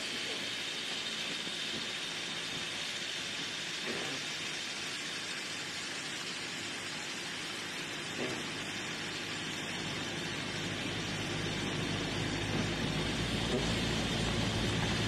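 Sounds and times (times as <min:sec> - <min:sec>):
tyre noise on wet road: 0:00.0 - 0:15.0.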